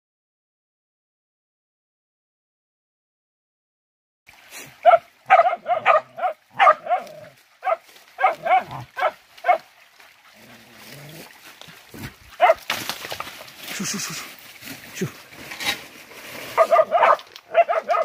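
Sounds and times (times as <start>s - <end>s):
dog barking in high yelps: 4.8s - 9.7s, 12.3s - 12.7s, 16.5s - 18.0s.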